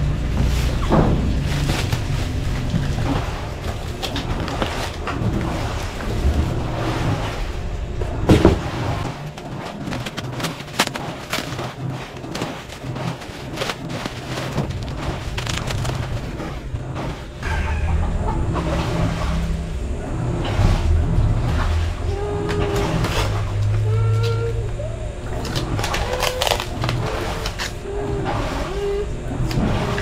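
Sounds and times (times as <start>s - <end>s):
bubble wrap crinkling: 9.2s - 17.4s, 25.4s - 27.8s.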